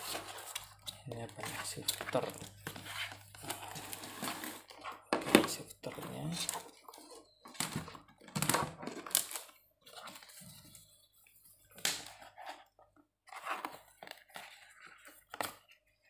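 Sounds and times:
cardboard rustling and crunching: 0.0s - 10.9s.

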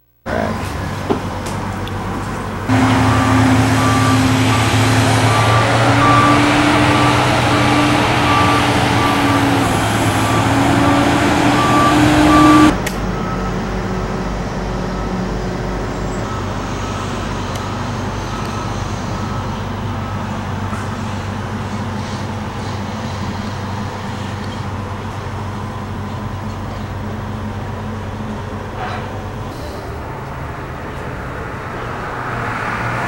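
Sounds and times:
quiet engine hum: 0.0s - 13.4s
diesel truck engine passing: 0.3s - 33.0s.

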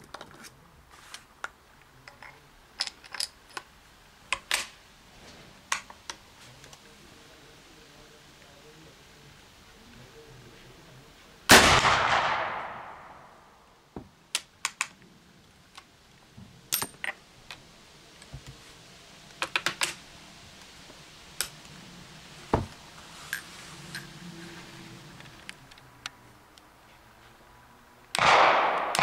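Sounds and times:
rifle shot: 11.5s - 13.5s, 28.2s - 29.0s.

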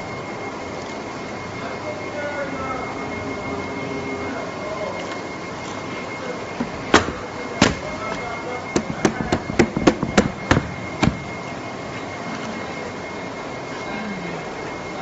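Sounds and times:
machine hum: 0.0s - 15.0s
thin high whine: 0.0s - 15.0s
cardboard knocks and cracks: 6.9s - 8.0s, 8.8s - 11.4s.

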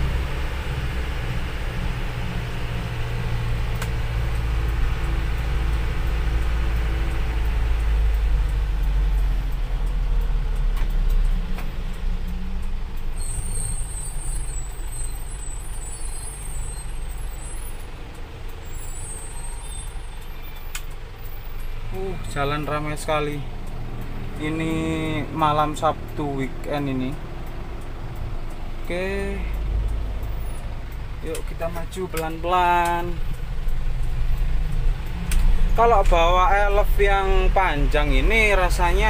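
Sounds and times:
diesel engine drone: 0.0s - 39.0s
high chirping: 13.2s - 17.8s, 18.6s - 20.8s.

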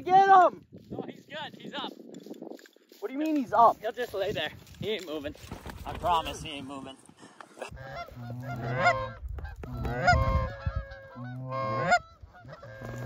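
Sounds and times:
geese honking: 7.6s - 13.0s.

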